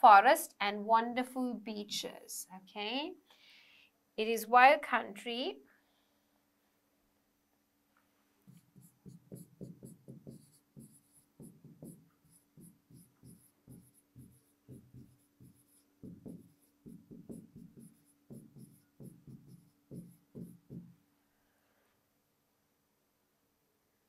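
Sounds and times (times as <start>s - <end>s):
stylus tapping and scratching: 8.5s - 21.0s.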